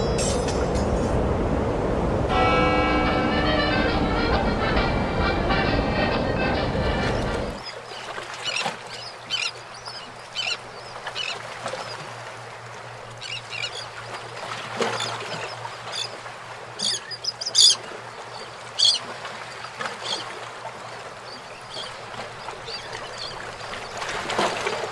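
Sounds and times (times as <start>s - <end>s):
birds squawking: 3.4s - 11.4s, 13.2s - 14.0s, 16.8s - 19.1s.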